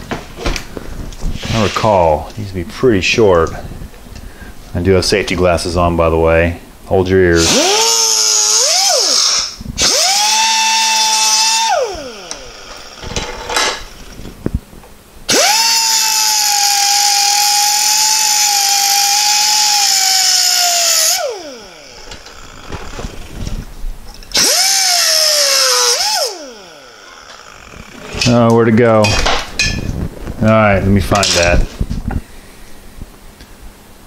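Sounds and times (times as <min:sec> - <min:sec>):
air cut-off tool whining: 0:07.3 - 0:14.4, 0:15.3 - 0:28.5.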